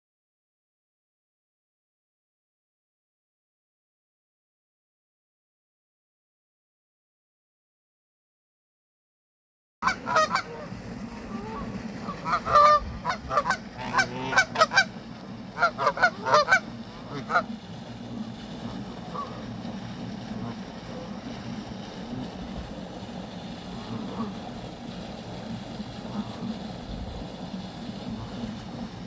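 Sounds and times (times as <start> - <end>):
geese honking: 9.8 - 22.4, 23.6 - 24.7, 25.9 - 26.7
low background rumble: 9.8 - 29.0.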